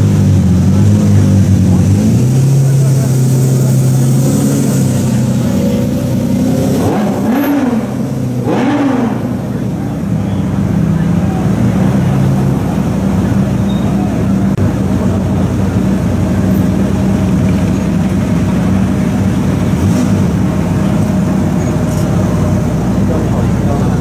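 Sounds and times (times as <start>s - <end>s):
car engine running at low revs: 0.0s - 24.0s.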